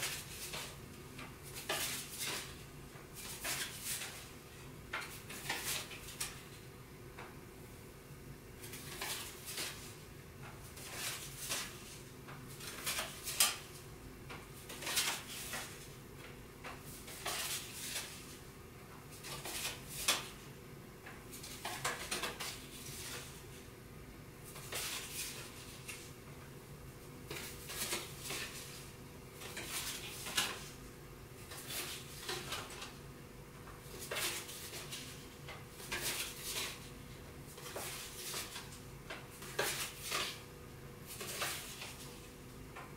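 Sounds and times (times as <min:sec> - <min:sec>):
faint steady hum: 0:00.0 - 0:42.9
playing cards clicking and sliding: 0:10.7 - 0:13.7, 0:16.7 - 0:18.4, 0:24.5 - 0:26.1, 0:27.3 - 0:30.8, 0:41.1 - 0:42.2.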